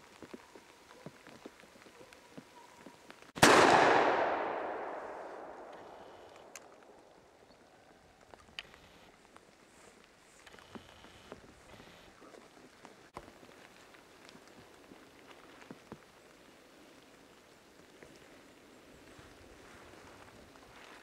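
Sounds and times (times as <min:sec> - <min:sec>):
patter of drips: 0:00.0 - 0:03.4, 0:12.2 - 0:21.0
gunshot echoing: 0:03.4 - 0:07.0.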